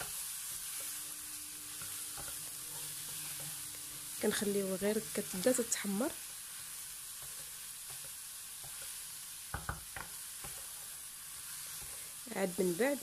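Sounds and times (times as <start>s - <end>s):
chicken and onion sizzling in a pan: 0.0s - 13.0s
wooden spatula stirring: 1.7s - 4.4s.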